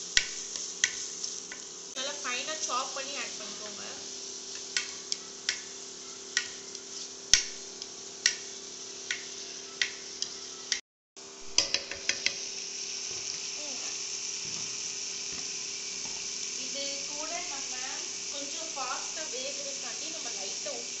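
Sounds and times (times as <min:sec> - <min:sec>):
vegetables sizzling in oil: 0:00.0 - 0:21.0
spatula knocking pan: 0:00.1 - 0:01.7, 0:04.5 - 0:07.6, 0:08.2 - 0:10.8, 0:11.5 - 0:12.4.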